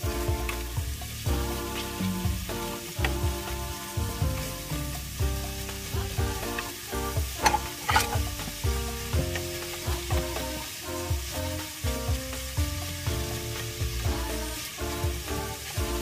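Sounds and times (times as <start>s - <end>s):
light background music: 0.0s - 16.0s
vegetables sizzling in oil: 0.0s - 16.0s
spatula scraping pot: 5.6s - 10.7s.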